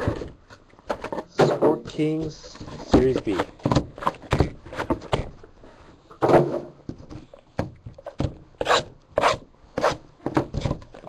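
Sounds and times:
card packs scraping and tapping: 0:00.9 - 0:05.3.

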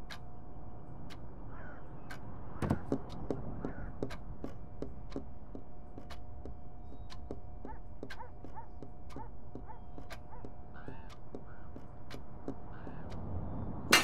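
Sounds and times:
faint steady hum: 0:00.0 - 0:14.0
dull thump: 0:02.6 - 0:03.0
pendulum clock ticking: 0:07.1 - 0:13.2
faint clicks: 0:08.0 - 0:13.2.

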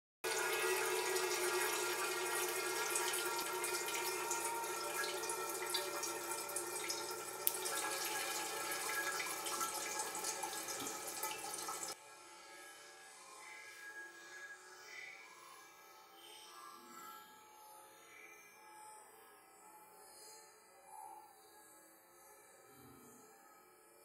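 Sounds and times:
water trickling into metal cans: 0:00.3 - 0:12.0.

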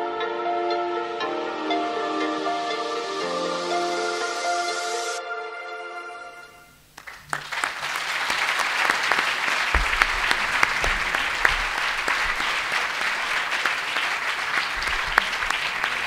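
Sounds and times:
short piece of music: 0:00.0 - 0:06.8
audience applauding: 0:06.9 - 0:16.0.

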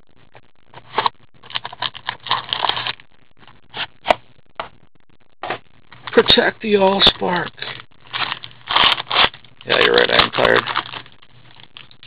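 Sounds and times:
packaging crackling and scraping: 0:00.7 - 0:04.2, 0:06.9 - 0:12.0.

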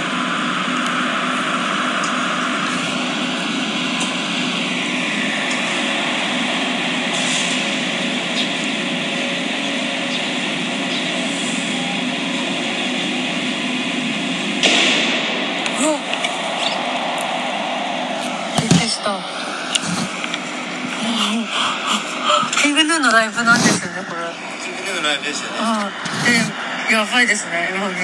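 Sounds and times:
outdoor background noise: 0:00.0 - 0:28.0
distant muffled live band: 0:01.9 - 0:21.0.

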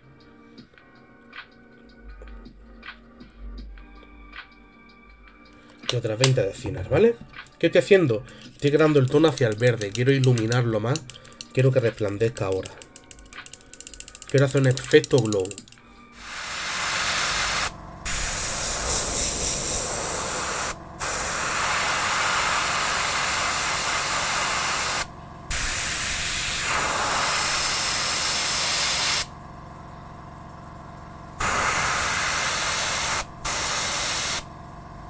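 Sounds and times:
airbrush spraying paint: 0:08.6 - 0:29.3, 0:31.4 - 0:34.5.

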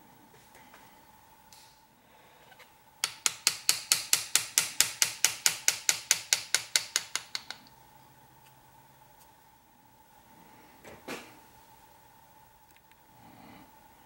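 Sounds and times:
hammer tapping engraving chisel: 0:03.0 - 0:07.6.

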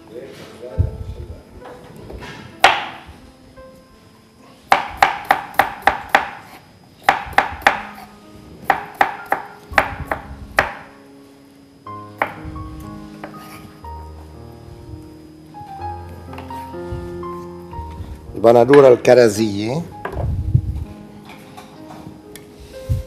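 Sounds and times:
knife chopping on wooden board: 0:02.6 - 0:03.0, 0:04.7 - 0:08.1, 0:08.7 - 0:10.9.

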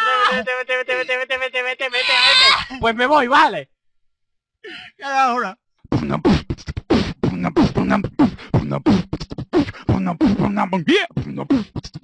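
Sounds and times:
person beatboxing: 0:05.9 - 0:12.0.

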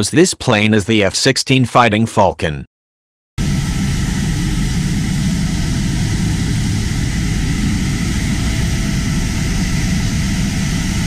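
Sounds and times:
jet engine roaring: 0:03.4 - 0:11.0.

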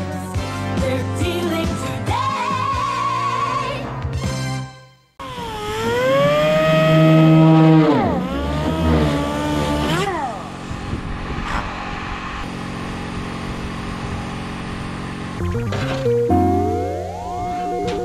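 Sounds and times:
engine revving: 0:05.6 - 0:10.7.

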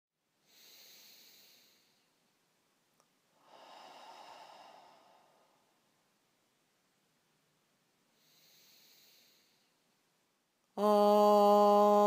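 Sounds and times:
faint breathy swells: 0:00.5 - 0:02.1, 0:03.4 - 0:05.9, 0:08.1 - 0:09.8.

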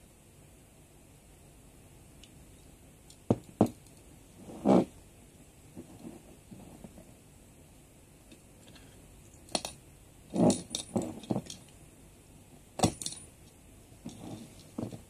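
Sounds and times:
metal clicks and clinks: 0:10.5 - 0:11.8, 0:12.8 - 0:13.3.

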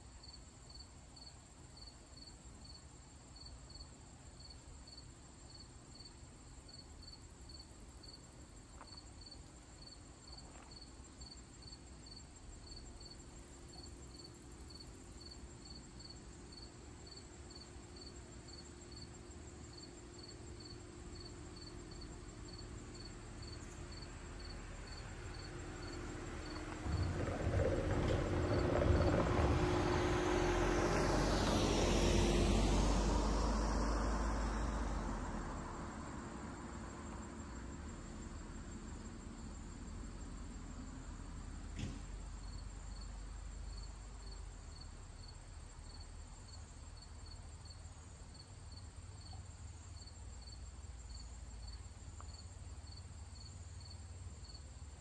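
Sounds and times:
high continuous insect trill: 0:00.0 - 0:55.0
insects chirping: 0:00.1 - 0:55.0
car rumbling over bridge: 0:12.4 - 0:47.6.

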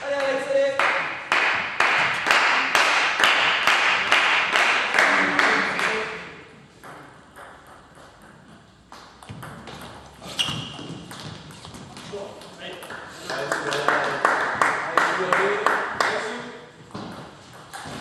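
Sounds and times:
hand clapping: 0:00.1 - 0:06.0, 0:12.9 - 0:16.3.

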